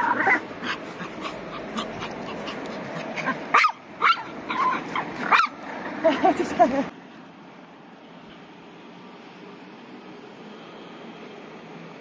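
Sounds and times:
small dog yipping: 3.2 - 5.6.

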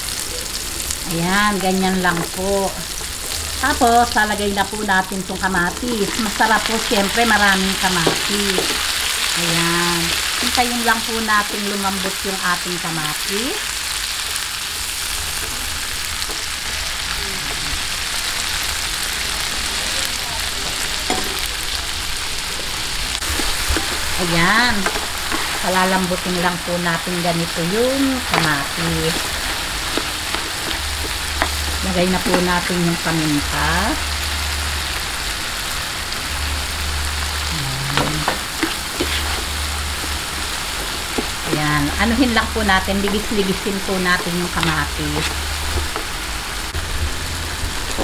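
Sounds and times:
vegetables sizzling in oil: 0.0 - 48.0
spatula stirring in pan: 23.2 - 33.1, 38.0 - 46.4.

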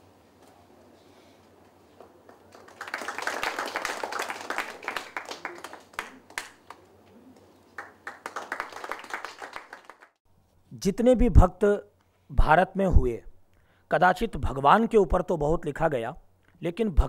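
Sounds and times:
audience applauding: 2.2 - 6.8, 7.7 - 10.2.

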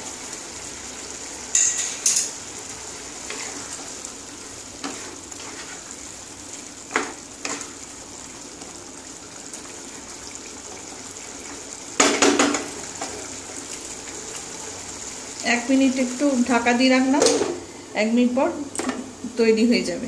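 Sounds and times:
curry sizzling in a wok: 0.0 - 20.0
spatula scraping a pan: 3.2 - 3.9, 4.8 - 6.1.

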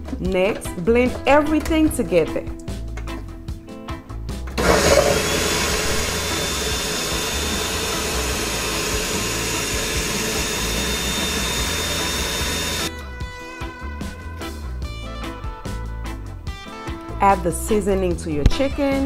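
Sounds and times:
blender whirring: 4.6 - 12.9.

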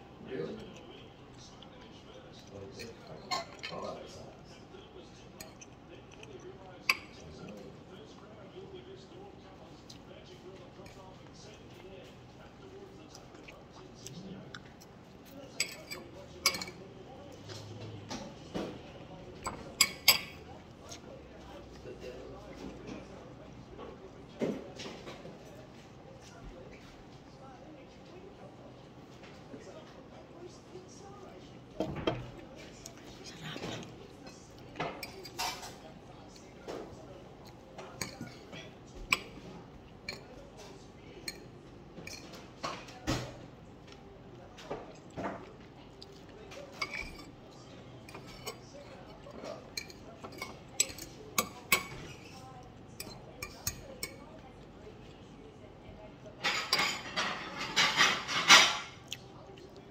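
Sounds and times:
cutlery clinking on a plate: 2.8 - 3.9, 5.4 - 7.2, 15.6 - 16.8, 19.4 - 21.0, 33.6 - 35.8, 37.8 - 44.0, 46.5 - 47.4, 48.0 - 54.2, 56.4 - 59.2.

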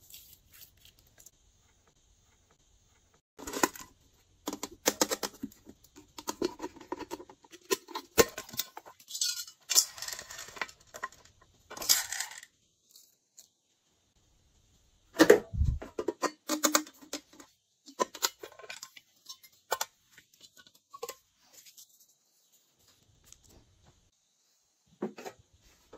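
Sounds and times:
small hard pieces clinking into container: 11.8 - 12.5.

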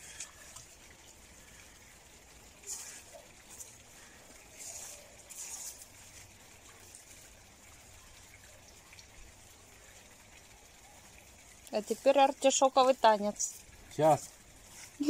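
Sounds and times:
hands rustling in soil: 2.6 - 7.2, 13.4 - 15.0.

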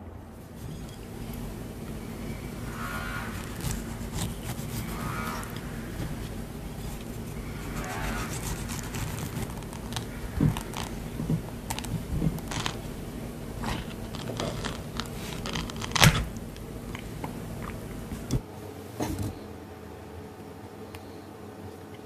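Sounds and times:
low steady hum: 0.0 - 22.0
knife cutting soft fruit: 3.4 - 11.0.

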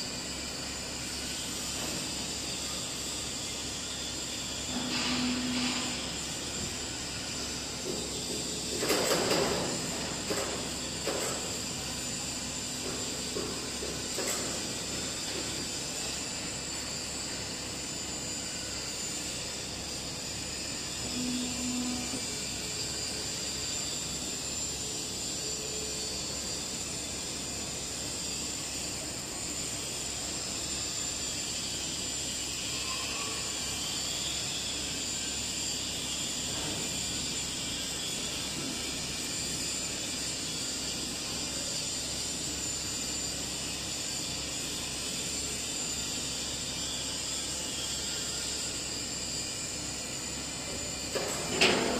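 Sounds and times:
plate rolling machine hissing: 0.0 - 51.9.

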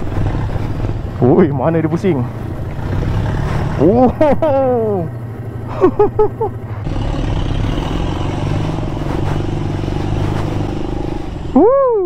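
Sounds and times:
motorcycle engine running: 0.0 - 11.9.

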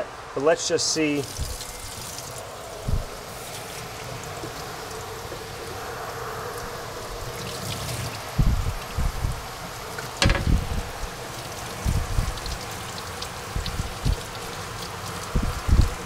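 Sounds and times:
knocks of metal panel in sink: 10.2 - 10.6.

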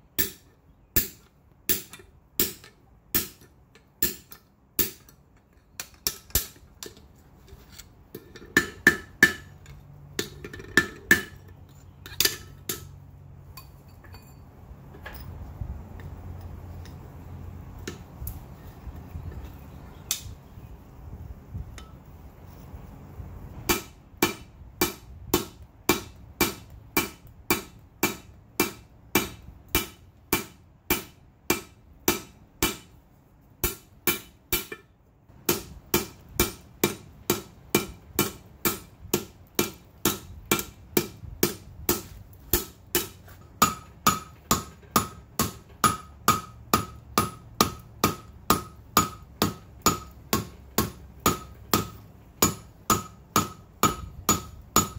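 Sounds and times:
hammer striking steel on anvil: 0.2 - 5.2, 5.8 - 7.0, 8.4 - 9.6, 12.0 - 13.0, 23.7 - 33.0, 33.6 - 54.9.

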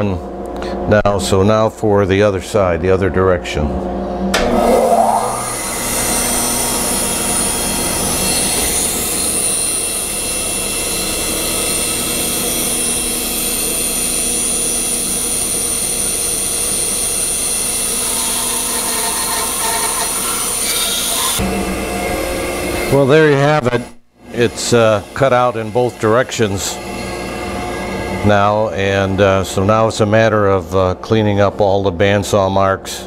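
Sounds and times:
bandsaw whining: 4.2 - 23.4
bandsaw blade cutting wood: 4.4 - 13.4, 16.2 - 21.4.

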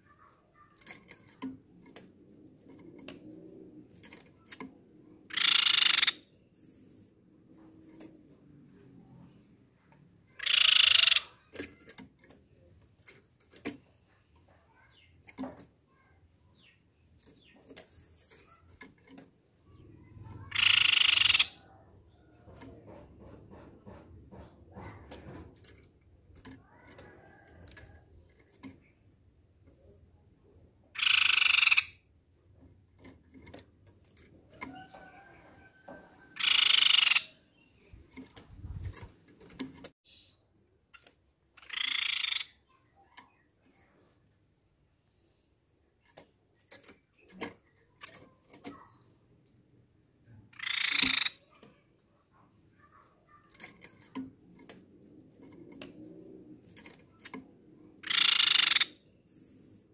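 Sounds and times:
bird calling: 5.3 - 7.2, 10.3 - 11.6, 19.7 - 22.3, 34.6 - 37.9, 50.5 - 54.1, 58.0 - 59.9.

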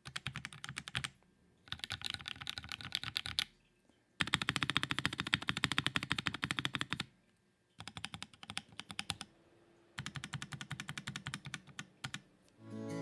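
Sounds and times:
mechanical keyboard typing: 0.0 - 3.5, 4.2 - 7.1, 7.8 - 9.3, 10.0 - 12.3.

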